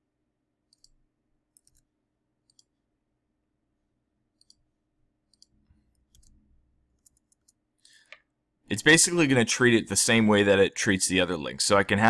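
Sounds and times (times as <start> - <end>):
keyboard clicks: 0.7 - 2.8, 4.4 - 4.6, 5.3 - 6.4
mouse clicks: 0.7 - 2.8, 4.4 - 4.7, 5.3 - 6.4.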